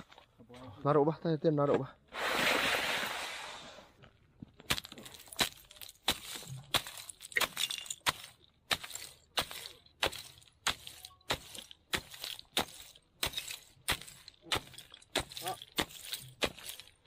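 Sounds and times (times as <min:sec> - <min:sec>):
ice chisel chopping ice: 0:04.7 - 0:17.0.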